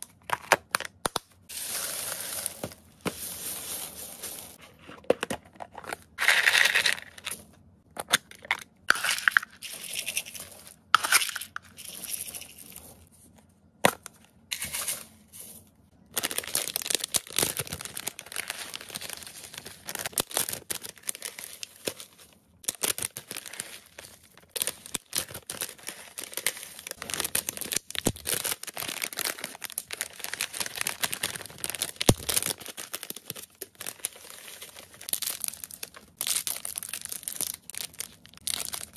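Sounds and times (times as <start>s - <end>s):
pellets rattling into plastic tubs: 1.5s - 4.6s, 6.2s - 7.4s, 8.9s - 13.0s, 14.5s - 38.9s
plastic bags crinkling: 16.0s - 38.9s.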